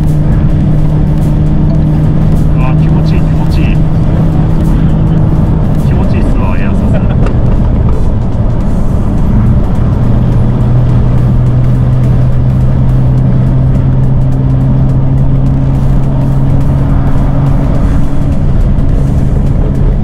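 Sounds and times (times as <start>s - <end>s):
higher tone: 0.0s - 7.5s
car engine droning: 0.0s - 20.0s.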